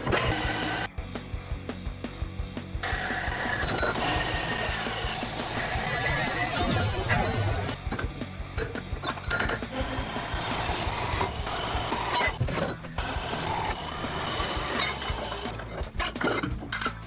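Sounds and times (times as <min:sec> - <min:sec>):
band saw cutting steel: 0:00.0 - 0:00.9, 0:02.8 - 0:07.8, 0:09.4 - 0:16.5.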